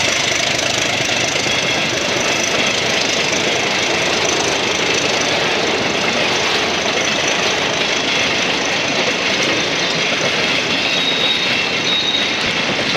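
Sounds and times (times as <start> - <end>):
train wheels rolling on rails: 0.0 - 12.9
faint high squeal: 10.7 - 12.5.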